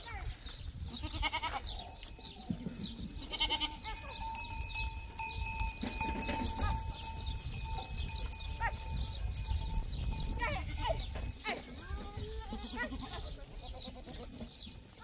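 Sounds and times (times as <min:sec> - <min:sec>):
goats bleating: 0:00.9 - 0:01.8, 0:02.6 - 0:07.2, 0:10.3 - 0:15.0
steady ringing tone: 0:02.8 - 0:10.3.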